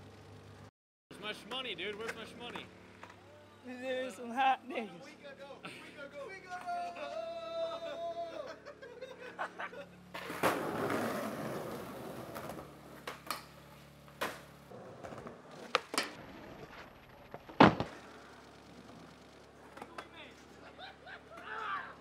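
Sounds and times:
skateboard wheels rolling on concrete: 0:00.0 - 0:03.4, 0:10.0 - 0:22.0
skateboard landing slap: 0:10.2 - 0:16.2, 0:17.3 - 0:18.1
skateboard clacks: 0:10.2 - 0:16.5.

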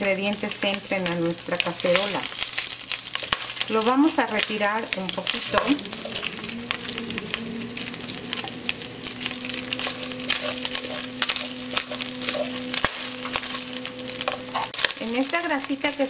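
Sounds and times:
bacon sizzling and crackling: 0:00.0 - 0:16.0
steady low hum: 0:04.3 - 0:15.1
wooden spatula stirring: 0:05.3 - 0:14.8.

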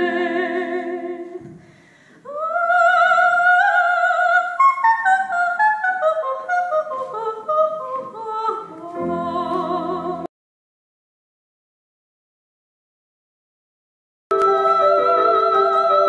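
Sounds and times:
soprano singing operatically: 0:00.0 - 0:01.5, 0:02.2 - 0:10.3, 0:14.3 - 0:16.0.

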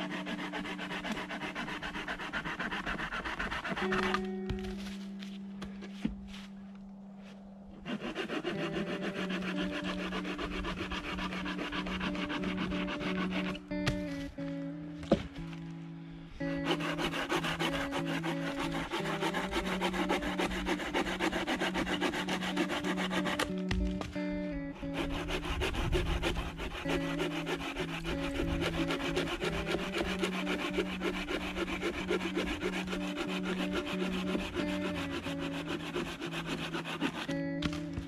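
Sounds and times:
hand saw cutting branch: 0:00.0 - 0:04.8, 0:07.8 - 0:15.2, 0:16.5 - 0:38.0
background music: 0:00.0 - 0:38.0.

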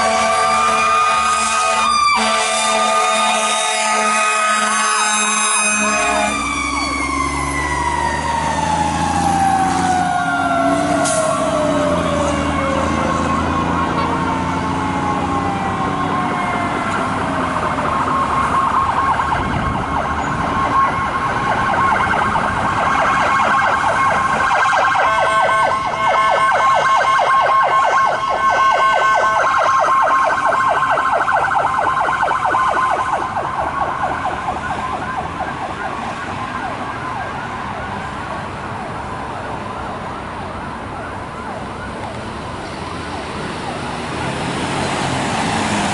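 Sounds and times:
diesel engine: 0:00.0 - 0:45.9
fire engine siren winding down: 0:00.0 - 0:45.9
electronic siren cycling: 0:17.9 - 0:35.2.

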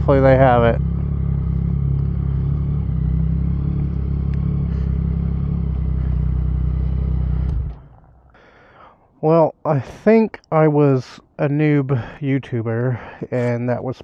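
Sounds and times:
motorcycle engine idling: 0:00.0 - 0:08.8.

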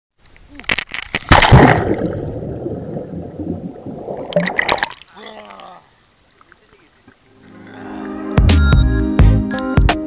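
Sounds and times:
underwater churning and bubbling: 0:01.3 - 0:05.1.

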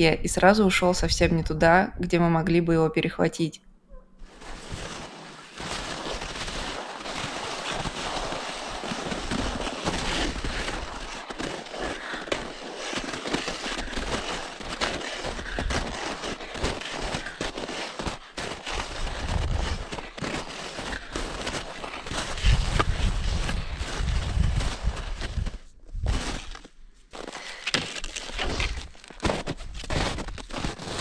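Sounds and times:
wind buffeting microphone: 0:22.3 - 0:26.2.

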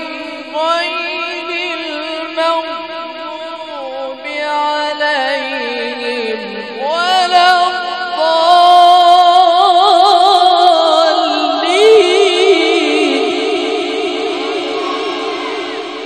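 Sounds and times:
man reciting melodically: 0:00.0 - 0:16.0.

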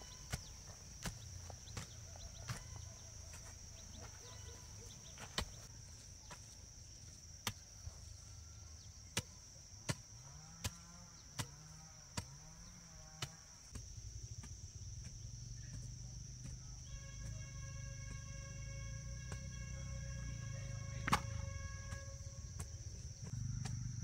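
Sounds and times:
hoe chopping into dry soil: 0:05.2 - 0:05.7, 0:21.0 - 0:23.8.

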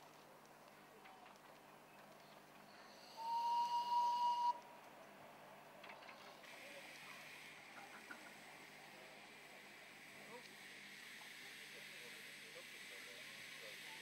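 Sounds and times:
steam locomotive whistle: 0:03.0 - 0:04.6.

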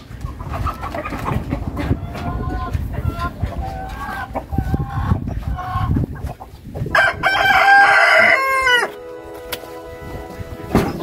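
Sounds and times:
chickens clucking: 0:00.0 - 0:11.0
rooster crowing: 0:07.0 - 0:09.1.

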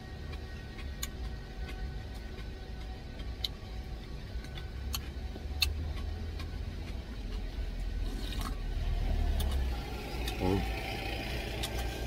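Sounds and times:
truck engine idling: 0:00.0 - 0:12.0.

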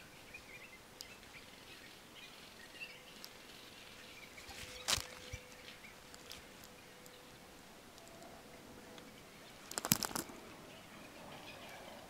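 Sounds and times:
faint bird chirps: 0:00.0 - 0:12.0
plastic tarp rustling on camera: 0:04.4 - 0:06.5.

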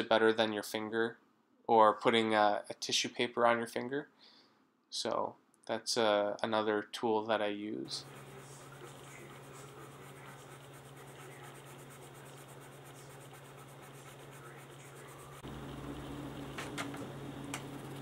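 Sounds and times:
steady low hum: 0:07.8 - 0:18.0
pencil scratching on paper: 0:07.9 - 0:15.4.

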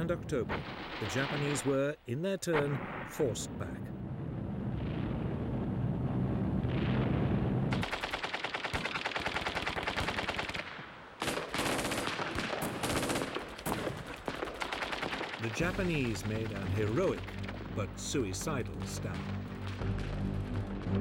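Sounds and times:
low rumble: 0:02.6 - 0:07.8
machine-gun fire: 0:07.7 - 0:17.6.

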